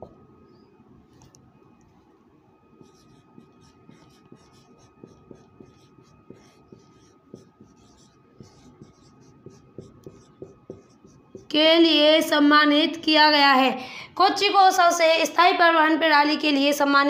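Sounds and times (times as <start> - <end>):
marker pen writing on whiteboard: 2.7 - 11.6.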